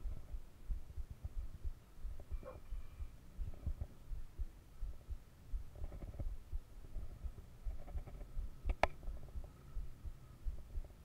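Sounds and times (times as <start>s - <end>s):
thumps and rumble on microphone: 0.0s - 11.0s
sharp click: 7.7s - 9.1s.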